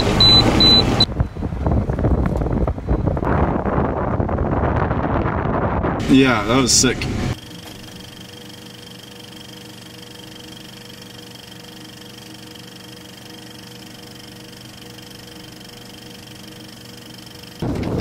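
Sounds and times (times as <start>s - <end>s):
film mechanism whirring: 7.4s - 18.0s.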